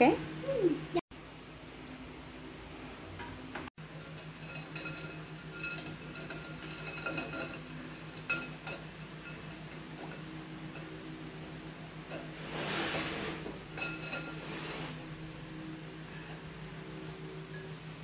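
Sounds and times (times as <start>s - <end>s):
metal spoon clinking on glass bowl: 4.0s - 10.2s.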